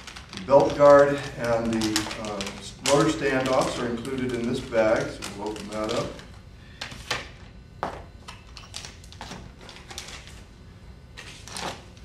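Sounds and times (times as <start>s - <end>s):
plastic bag rustling: 0.0s - 6.4s, 8.6s - 10.5s, 11.2s - 12.0s.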